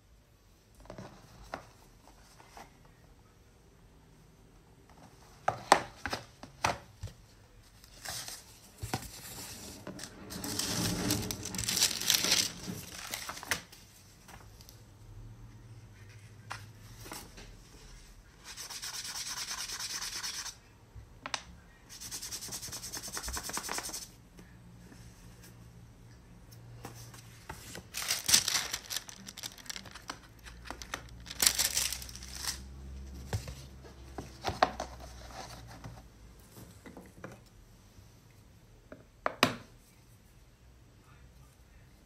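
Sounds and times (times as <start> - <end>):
pastel sticks rubbing on paper: 18.4 - 20.6, 21.9 - 24.2.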